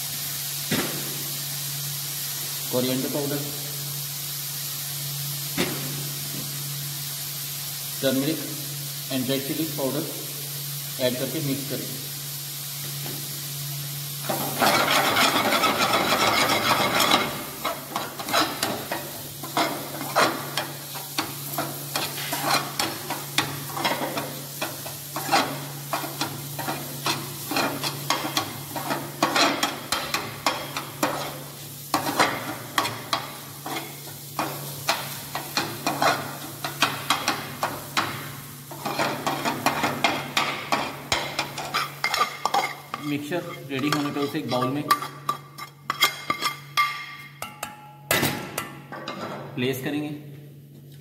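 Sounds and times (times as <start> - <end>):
light sizzling: 0.0 - 47.8
ladle scraping a metal pan: 14.3 - 20.6, 21.5 - 23.1, 40.7 - 46.7.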